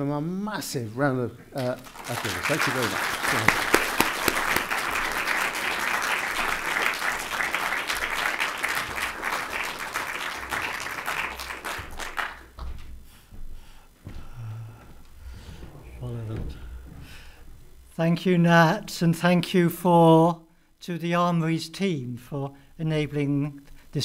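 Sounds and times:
audience applauding: 1.6s - 12.5s.

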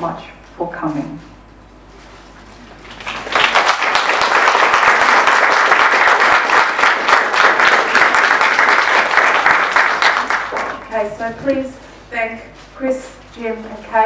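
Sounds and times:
audience applauding: 2.8s - 10.9s.

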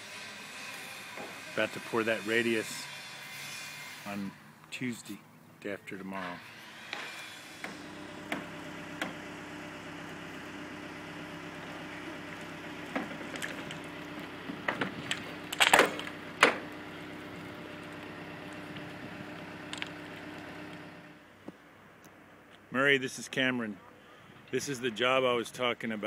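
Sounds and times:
machine engine drone: 7.7s - 21.2s.

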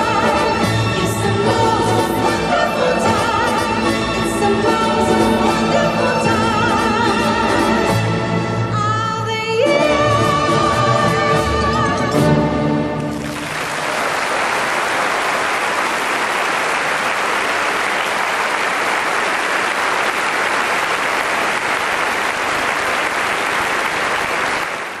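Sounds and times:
audience applauding: 13.0s - 25.0s.

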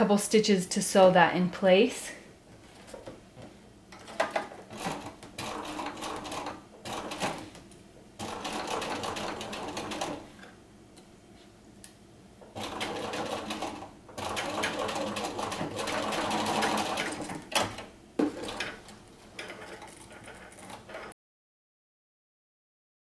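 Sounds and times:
sewing machine stitching: 4.0s - 7.6s, 8.2s - 10.4s, 12.4s - 21.1s.

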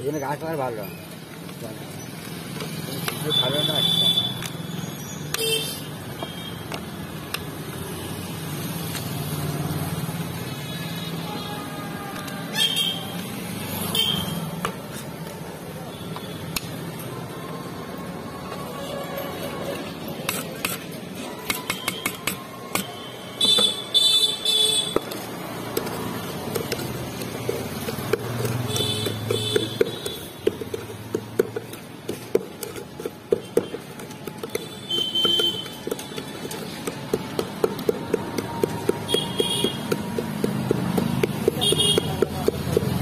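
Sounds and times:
wooden pestle pounding in steel pail: 20.2s - 43.0s.

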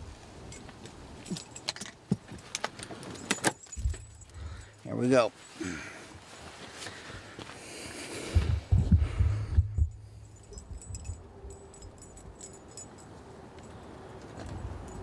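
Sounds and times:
light clicks and jingling: 0.4s - 7.5s, 8.6s - 15.0s
heavy low thumps: 3.8s - 4.7s, 8.3s - 11.1s
fabric rustling: 5.3s - 7.4s.

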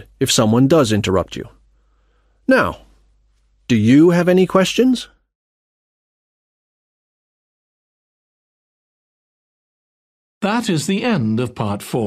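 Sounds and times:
person speaking: 0.0s - 1.6s, 2.4s - 3.0s, 3.6s - 5.2s.

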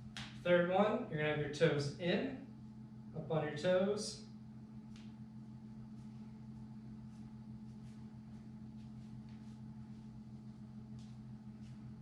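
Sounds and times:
low electrical hum: 0.0s - 12.0s
soft footsteps on tile: 5.8s - 12.0s.

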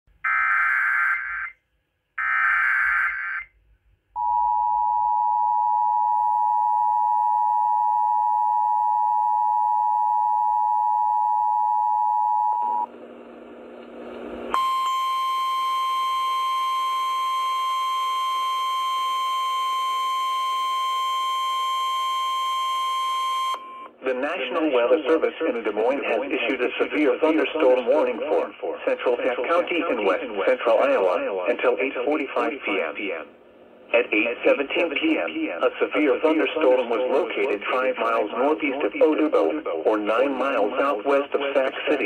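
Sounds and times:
steady warning alarm tone: 0.3s - 1.5s, 2.2s - 3.5s, 14.5s - 23.9s.

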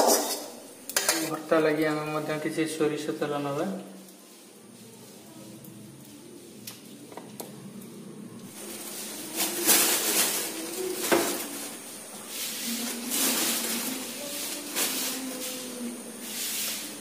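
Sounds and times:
plastic bag crinkling: 8.5s - 16.0s.

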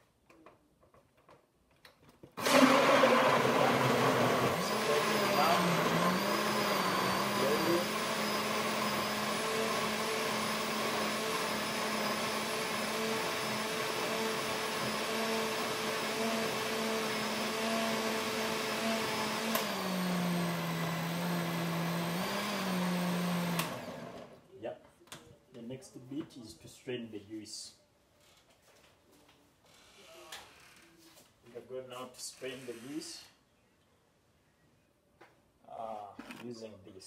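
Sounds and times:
electric blender running: 2.4s - 24.4s.

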